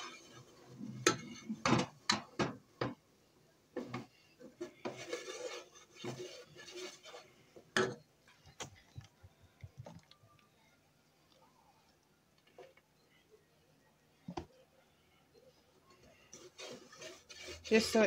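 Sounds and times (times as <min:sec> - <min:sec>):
plastic spoon scraping a pot: 0:04.4 - 0:07.4, 0:16.1 - 0:18.0.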